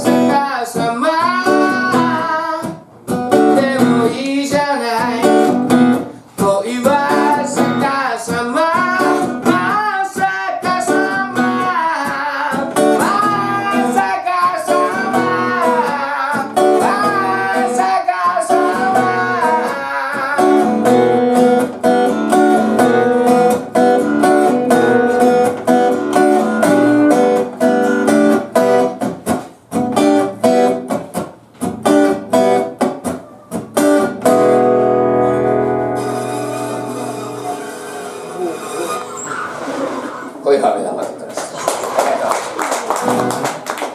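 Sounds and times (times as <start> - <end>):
man singing: 0.0 - 5.6, 6.4 - 21.0
strummed acoustic guitar: 0.0 - 41.2.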